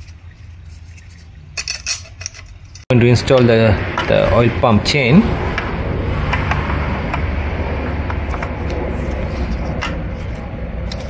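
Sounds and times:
steady low rumble: 2.9 - 11.0.

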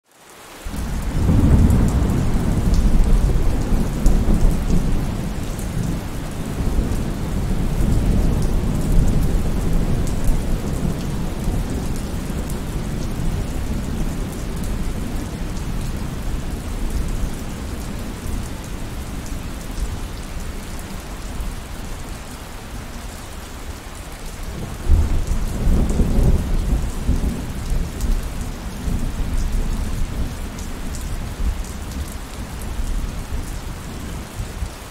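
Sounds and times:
heavy rain: 0.0 - 34.9
rolling thunder: 0.7 - 19.0, 24.5 - 30.6.

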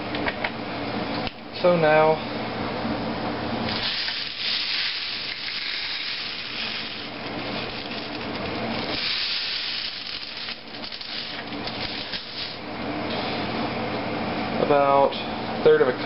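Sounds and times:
steady hiss: 3.7 - 13.5.

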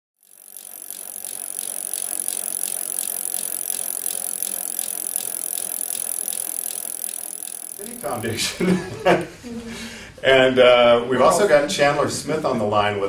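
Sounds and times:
bicycle freewheel clicking: 0.2 - 8.7.

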